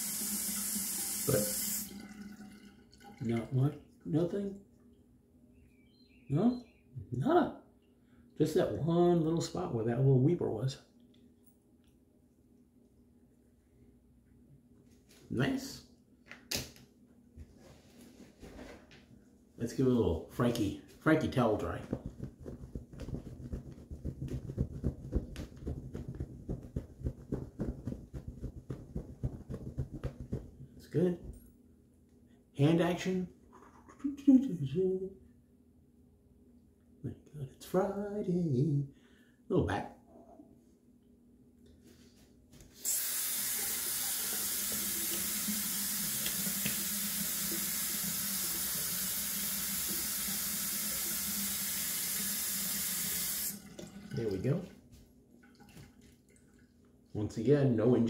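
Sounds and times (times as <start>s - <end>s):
tap water running into sink: 0.0s - 3.6s, 42.9s - 54.5s
towel rubbing over face: 21.7s - 30.8s.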